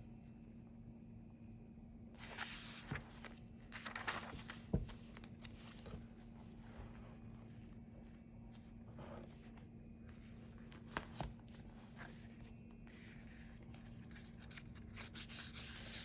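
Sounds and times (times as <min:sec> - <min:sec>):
paper pages rustling: 0:02.2 - 0:07.4, 0:08.5 - 0:16.0.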